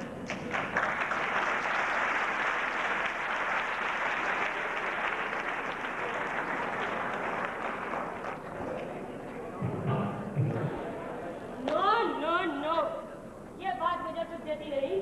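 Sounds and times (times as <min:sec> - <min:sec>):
audience applauding: 0:00.0 - 0:09.1.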